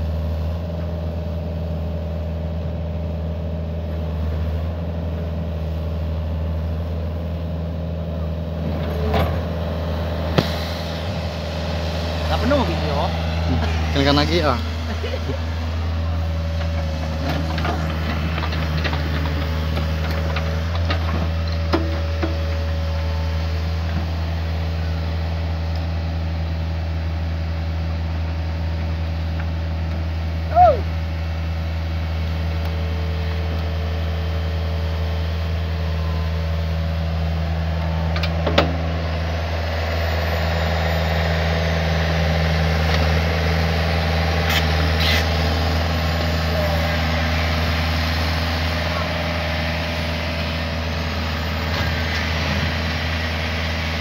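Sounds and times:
excavator diesel engine running: 0.0 - 54.0.

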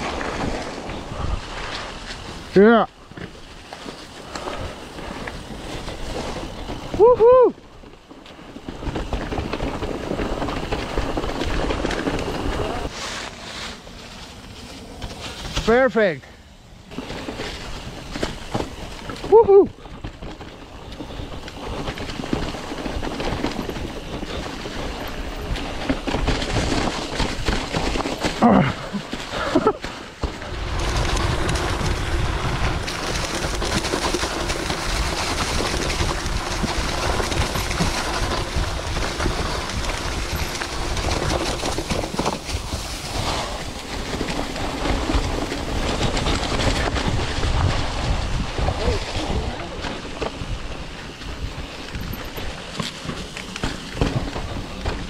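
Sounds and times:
bike rattling over rough ground: 0.0 - 55.0
tyres crunching through dry leaves: 0.0 - 55.0.

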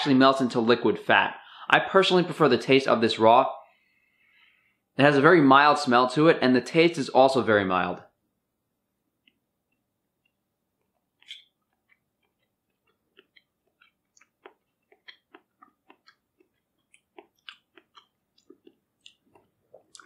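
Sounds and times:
person chewing with mouth clicks: 9.2 - 20.0.

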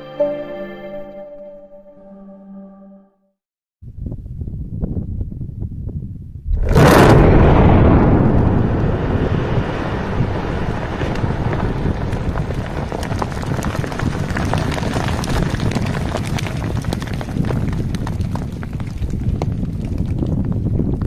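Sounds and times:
explosive boom: 6.4 - 14.2
rumble of falling rock: 6.4 - 21.0
scattered crackles: 6.5 - 21.0.

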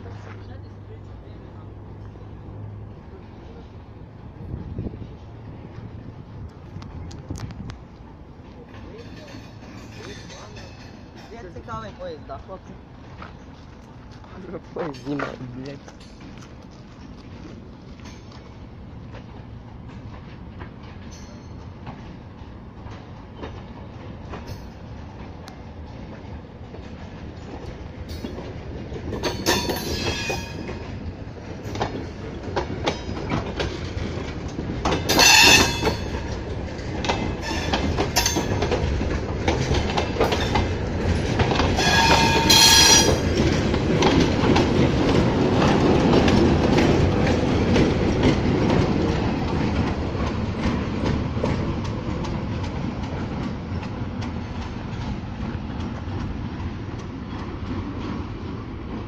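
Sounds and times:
diesel locomotive rumble: 0.0 - 59.0
train wheels clacking over rail joints: 2.8 - 59.0
wheel flanges squealing: 35.0 - 36.4, 37.1 - 38.8, 40.2 - 43.7.

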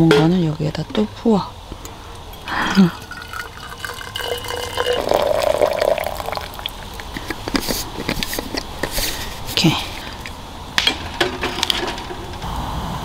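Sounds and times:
hot water pouring into bottle: 2.2 - 8.2.

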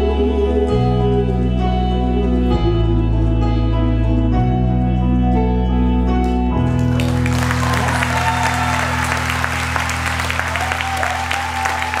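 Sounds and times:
song accompaniment holding chord: 0.0 - 12.0
audience applause: 6.7 - 12.0.

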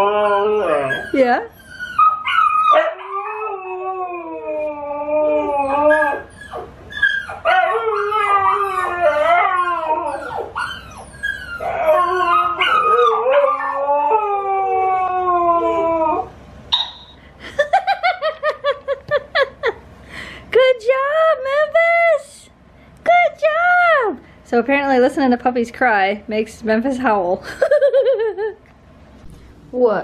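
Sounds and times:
dog howling: 0.0 - 16.4
puppies crying on tv: 0.0 - 17.3.

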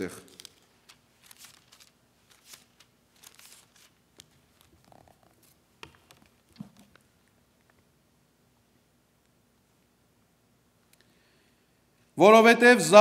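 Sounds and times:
paper pages rustling: 0.3 - 7.1.

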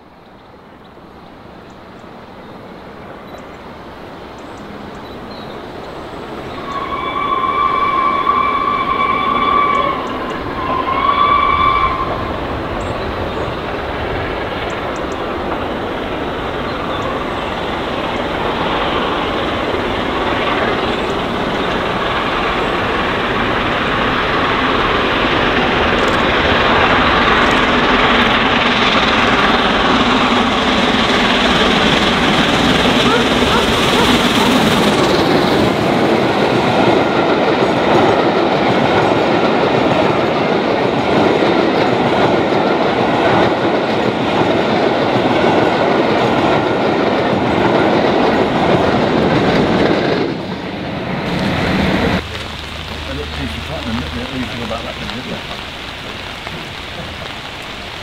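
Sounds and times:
train rolling: 0.0 - 58.0
steam locomotive exhaust: 4.6 - 58.0
steam whistle: 6.5 - 12.3.

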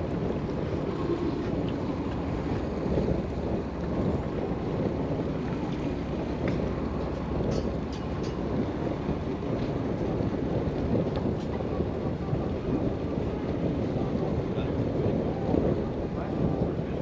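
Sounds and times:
water noise: 0.0 - 17.0
wind: 0.0 - 17.0.

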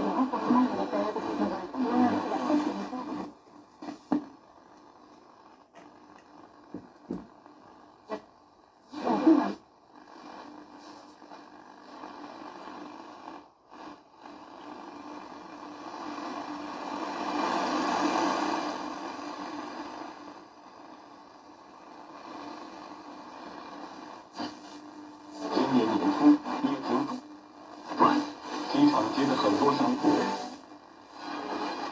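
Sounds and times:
radio voice through static: 0.0 - 4.2, 8.9 - 9.6, 23.8 - 31.9
radio static hiss: 0.0 - 31.9.

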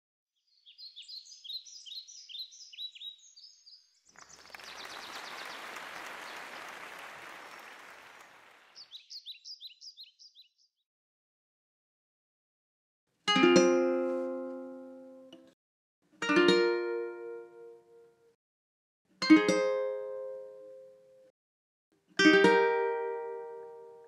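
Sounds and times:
birds chirping: 0.4 - 10.8.

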